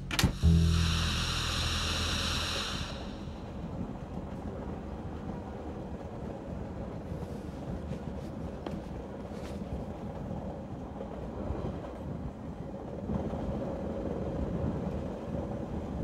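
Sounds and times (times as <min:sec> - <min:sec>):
loud ringing: 0:00.3 - 0:04.1
train carriage rumbling on track: 0:01.8 - 0:16.0.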